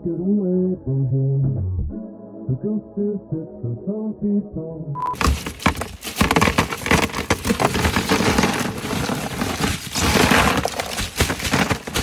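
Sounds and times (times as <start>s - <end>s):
ice cubes clattering into cooler: 5.2s - 12.0s.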